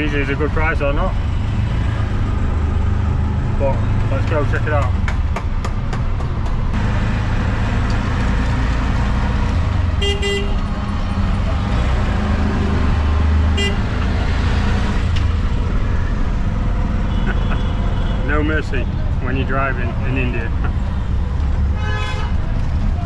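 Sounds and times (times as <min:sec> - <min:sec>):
auto-rickshaw engine rumbling: 0:00.0 - 0:23.0
horn tooting: 0:10.0 - 0:10.7, 0:13.5 - 0:14.0, 0:21.8 - 0:22.4.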